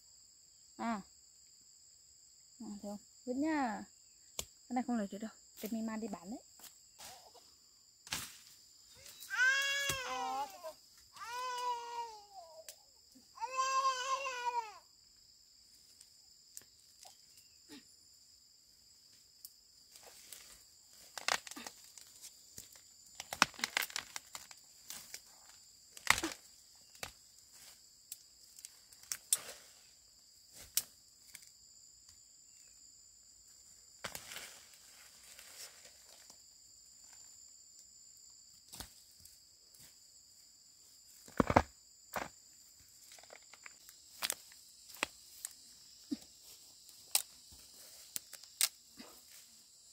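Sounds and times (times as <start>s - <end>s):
insects droning: 0.0s - 49.9s
plants rustling and snapping: 19.9s - 29.6s, 34.0s - 34.7s, 43.0s - 45.6s, 46.9s - 48.8s.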